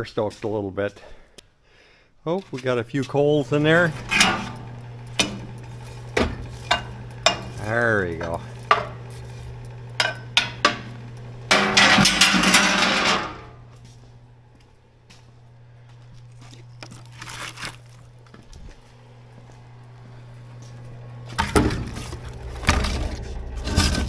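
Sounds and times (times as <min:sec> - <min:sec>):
steady low hum: 0:00.0 - 0:24.0
poker scraping coals: 0:02.3 - 0:14.1, 0:15.8 - 0:19.0, 0:20.5 - 0:24.0
poker clanking in firebox: 0:03.6 - 0:13.6.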